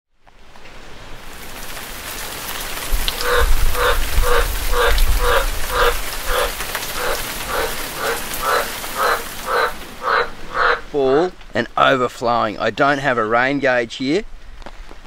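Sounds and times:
steady rain: 0:00.1 - 0:15.0
frog croaking: 0:03.1 - 0:11.0.

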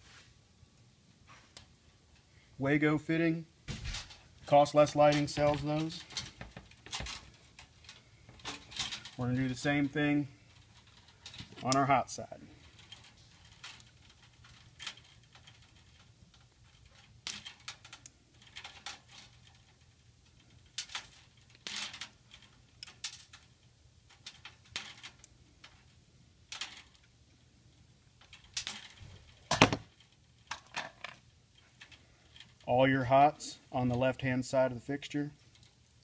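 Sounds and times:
small handling noises: 0:00.0 - 0:36.0
wire stripper clicking and snapping: 0:12.7 - 0:19.8, 0:20.4 - 0:25.8, 0:28.2 - 0:31.2.

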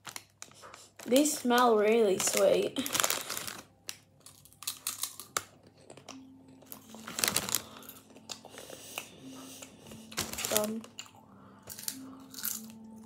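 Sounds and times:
foil packet crinkling: 0:00.0 - 0:08.7, 0:09.8 - 0:11.0
crisps crunching: 0:00.0 - 0:09.2, 0:09.8 - 0:13.0.

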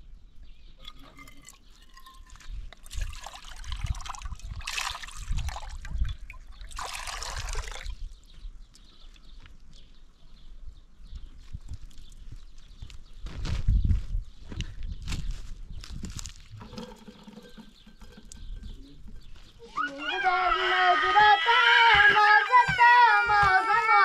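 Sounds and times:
water pouring: 0:00.8 - 0:08.0, 0:16.4 - 0:19.3.

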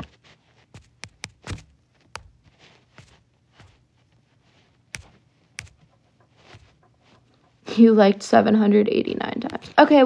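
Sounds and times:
fingers tapping on phone: 0:00.7 - 0:03.8, 0:04.9 - 0:07.6.

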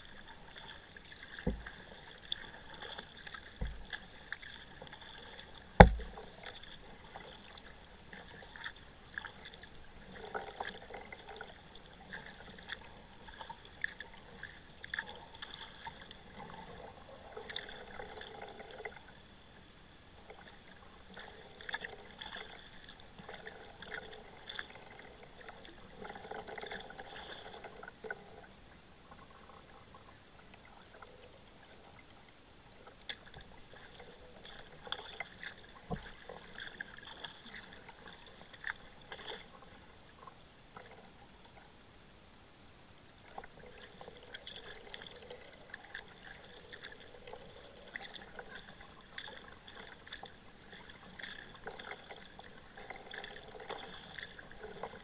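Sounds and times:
paddle dipping in water: 0:00.0 - 0:19.2, 0:20.2 - 0:41.8, 0:43.1 - 0:55.0
water dripping off paddle: 0:00.4 - 0:11.5
knocks against kayak: 0:05.8 - 0:06.1.

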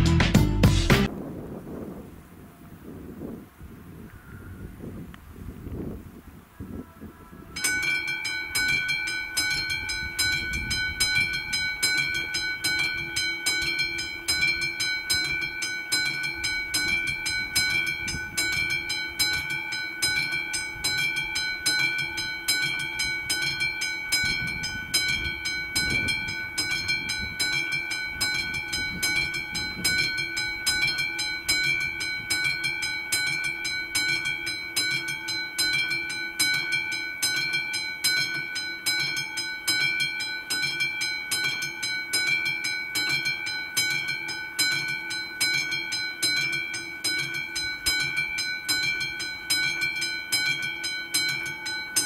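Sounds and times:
level crossing warning bell: 0:07.5 - 0:52.0.

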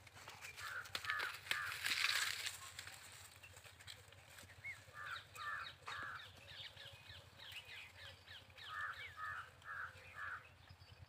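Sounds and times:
small birds chirping: 0:00.3 - 0:11.0
crow cawing: 0:00.6 - 0:02.4, 0:05.0 - 0:06.3, 0:08.6 - 0:10.5.

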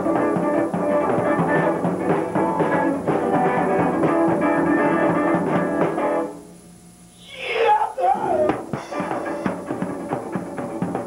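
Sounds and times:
band playing guitar and drums: 0:00.0 - 0:06.4, 0:08.2 - 0:11.0.

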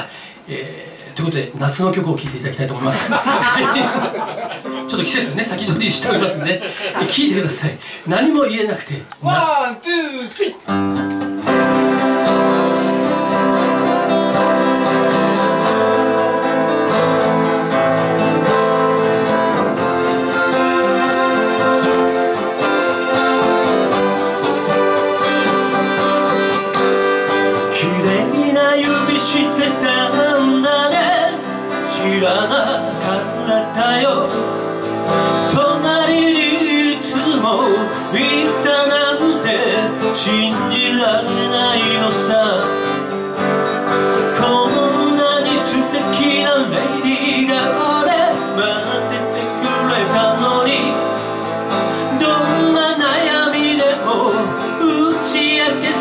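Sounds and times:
acoustic guitar playing: 0:02.0 - 0:08.6, 0:10.5 - 0:56.0
person singing: 0:11.4 - 0:43.2, 0:44.2 - 0:56.0.

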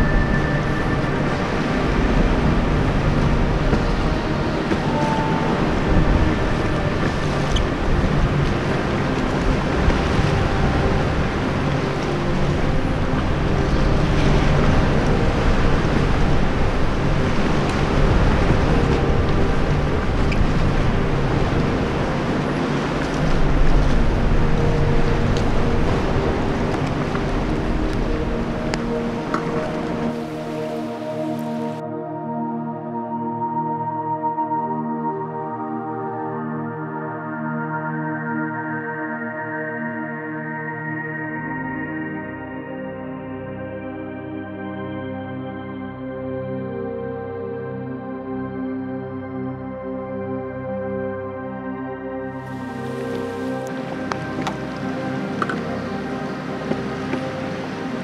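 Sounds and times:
water lapping around kayak: 0:52.4 - 0:58.0.

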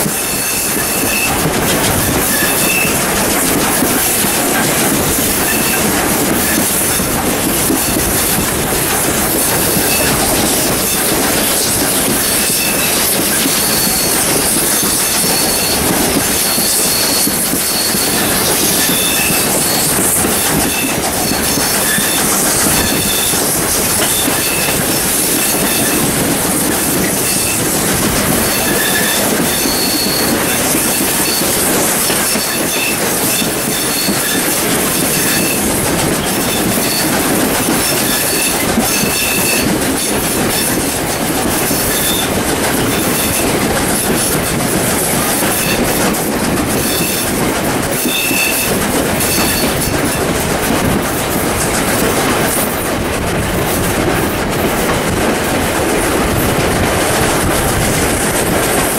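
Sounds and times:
train running noise with hiss: 0:00.0 - 0:58.9
wheels squealing on curve: 0:02.0 - 0:03.0, 0:09.4 - 0:26.1.

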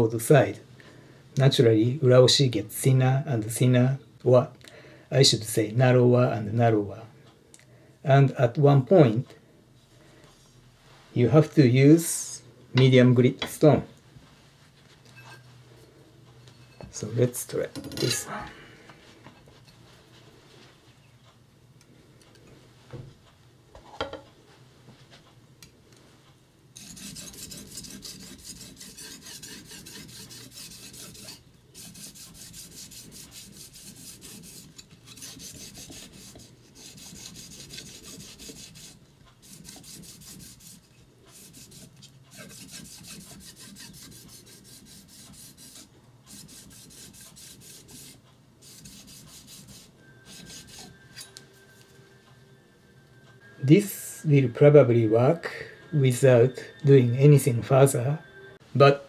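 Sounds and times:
blade scraping on whetstone: 0:26.8 - 0:51.4.

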